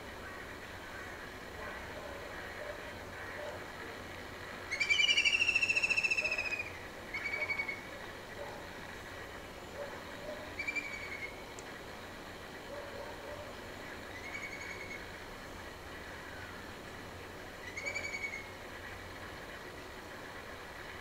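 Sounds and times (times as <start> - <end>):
bird trilling: 4.7 - 7.9, 10.5 - 11.4, 14.1 - 15.1, 17.6 - 18.5.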